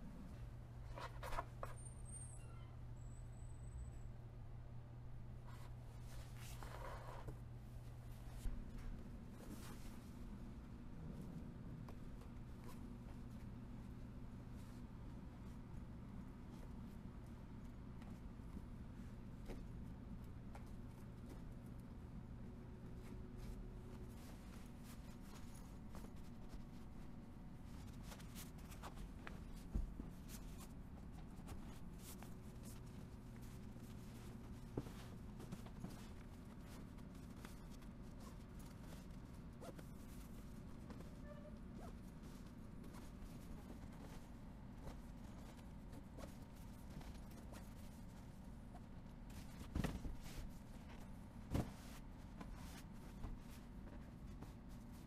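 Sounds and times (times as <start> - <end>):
rustling and scraping of upholstery: 5.5 - 10.3, 22.9 - 55.0.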